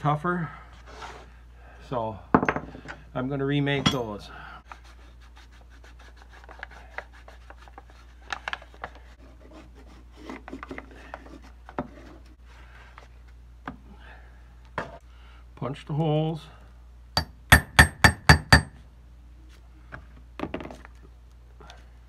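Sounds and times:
paper rustling and rubbing: 4.7s - 13.3s.

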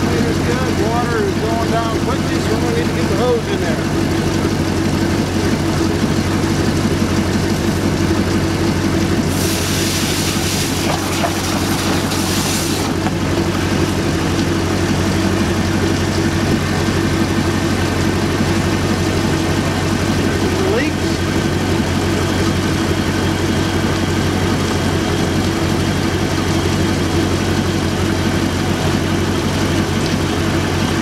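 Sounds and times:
boat engine idling: 0.0s - 31.0s
hiss: 9.3s - 12.9s.

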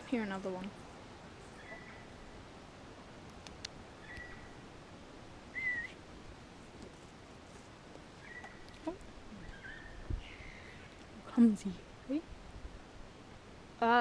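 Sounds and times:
whistled notes: 5.6s - 6.0s.

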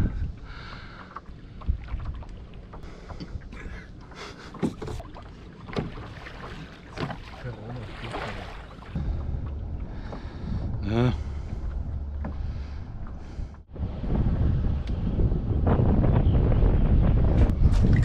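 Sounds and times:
wind rumbling on microphone: 0.0s - 4.0s, 7.8s - 18.0s.

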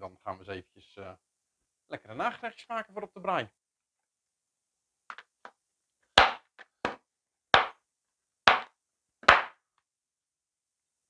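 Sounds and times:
knife chopping on wooden board: 6.2s - 7.0s, 7.6s - 7.8s, 8.5s - 9.5s.

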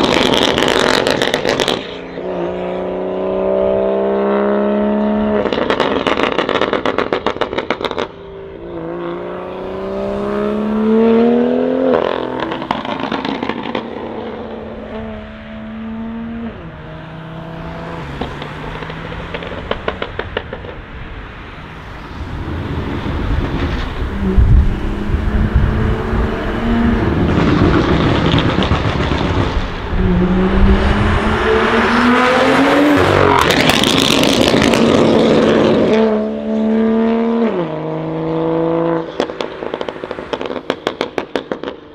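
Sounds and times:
exhaust crackles and pops: 0.0s - 2.0s, 18.2s - 20.9s, 27.2s - 30.0s, 33.3s - 35.8s
car engine revving: 0.0s - 20.9s, 22.0s - 41.9s.

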